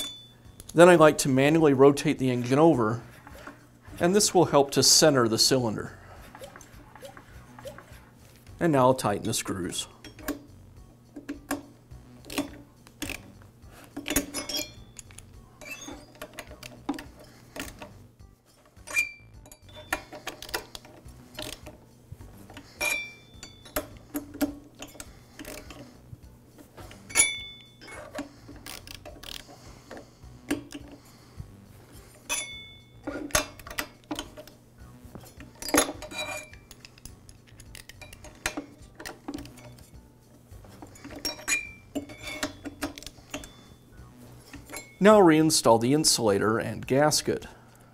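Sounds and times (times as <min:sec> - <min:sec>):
screwdriver clinking on metal: 0:00.0 - 0:00.9, 0:09.9 - 0:10.4, 0:11.2 - 0:21.8, 0:22.4 - 0:26.0, 0:26.8 - 0:31.0, 0:32.1 - 0:34.6, 0:35.2 - 0:40.0, 0:40.7 - 0:43.8, 0:44.4 - 0:45.1.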